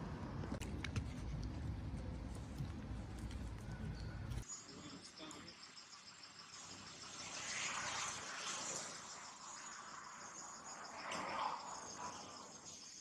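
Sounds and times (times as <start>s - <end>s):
insects trilling: 4.4s - 13.0s.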